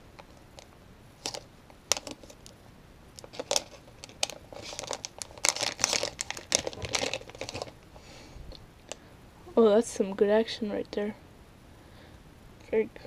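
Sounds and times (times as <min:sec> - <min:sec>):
plastic packaging crinkling: 0:00.2 - 0:02.6, 0:03.2 - 0:08.0.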